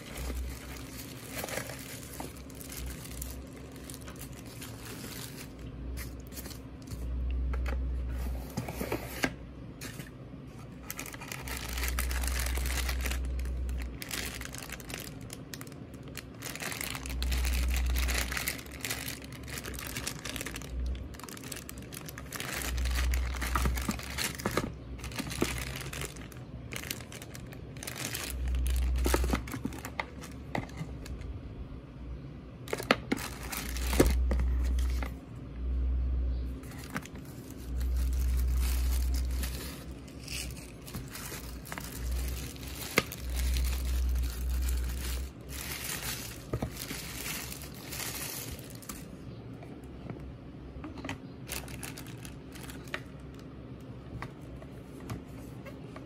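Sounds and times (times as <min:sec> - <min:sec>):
plastic packaging crinkling: 0:00.0 - 0:07.9, 0:09.8 - 0:31.3, 0:32.6 - 0:35.2, 0:36.6 - 0:49.2, 0:51.2 - 0:53.9
low rumble: 0:33.2 - 0:49.1.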